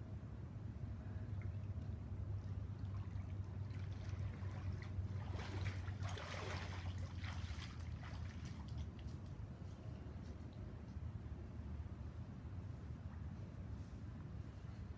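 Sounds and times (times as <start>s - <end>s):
pool water trickling and lapping: 0.4s - 11.6s.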